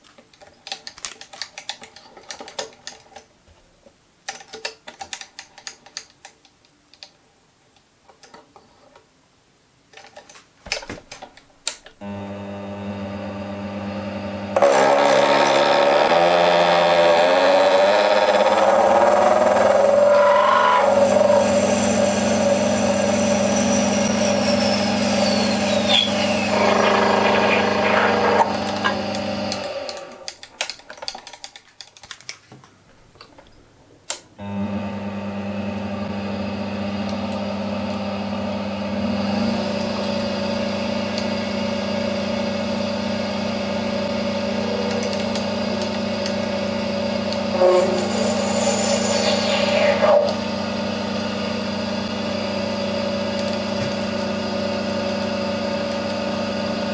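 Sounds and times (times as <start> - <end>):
lathe motor humming: 12.0 - 30.3, 42.8 - 56.7
lathe tool cutting brass: 14.6 - 30.2, 44.1 - 50.4.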